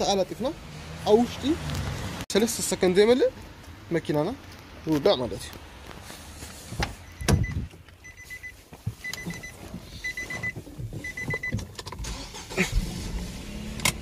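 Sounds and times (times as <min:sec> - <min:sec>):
car engine cranking and idling: 0:07.1 - 0:14.0.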